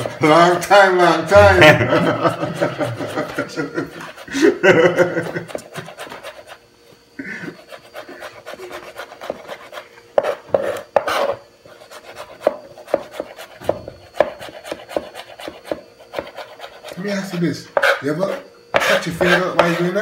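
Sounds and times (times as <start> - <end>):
cleaver chopping on cutting board: 10.2 - 11.4, 12.2 - 16.6, 17.8 - 18.0, 18.7 - 19.8.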